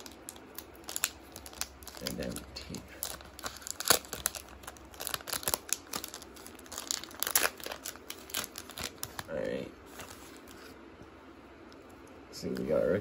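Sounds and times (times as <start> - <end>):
tape peeling: 0.0 - 9.3
plastic wrapper crackling: 0.0 - 10.6.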